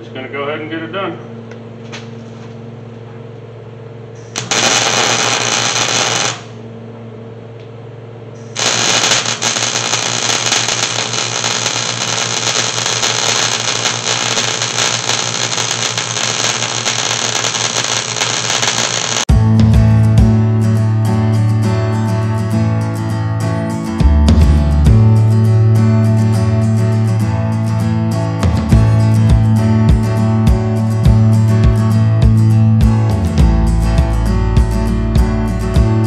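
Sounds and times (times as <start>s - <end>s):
steady low hum: 0.0s - 36.0s
arc welding: 4.3s - 6.6s, 8.4s - 19.3s.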